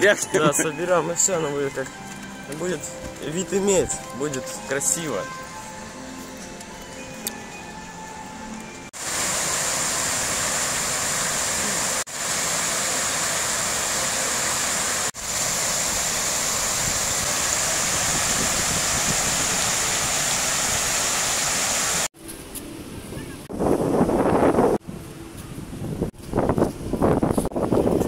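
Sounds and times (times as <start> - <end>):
fountain water splashing into pool: 9.0 - 22.1.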